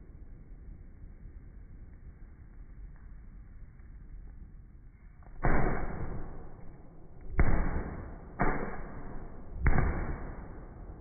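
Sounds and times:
slowed fireworks bangs: 5.4s - 11.0s.

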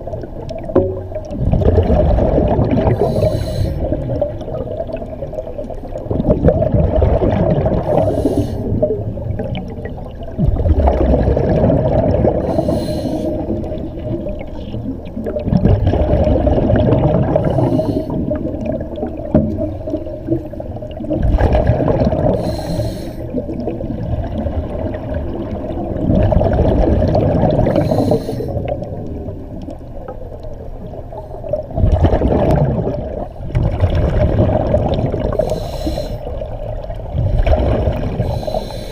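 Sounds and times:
exhaled bubbles rushing: 0.0s - 38.9s
diver breathing through regulator: 2.8s - 4.0s, 7.8s - 8.8s, 12.4s - 13.6s, 17.3s - 18.4s, 22.3s - 23.4s, 27.6s - 28.7s, 35.3s - 36.3s, 38.2s - 38.9s.

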